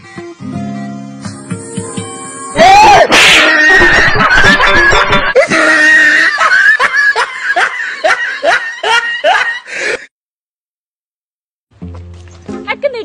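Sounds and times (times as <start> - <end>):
loud laughter: 2.8 - 9.7.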